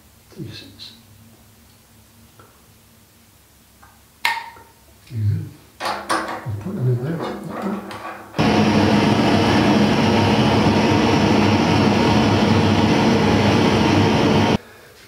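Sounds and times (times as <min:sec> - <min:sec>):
blowtorch flame hissing: 0:08.4 - 0:14.6.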